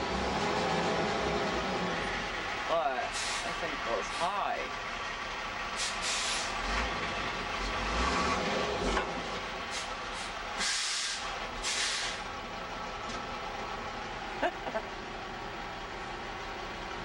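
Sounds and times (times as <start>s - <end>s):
truck engine running: 0.0s - 17.0s
air hissing bursts: 3.1s - 3.5s, 5.8s - 6.5s, 9.7s - 12.2s.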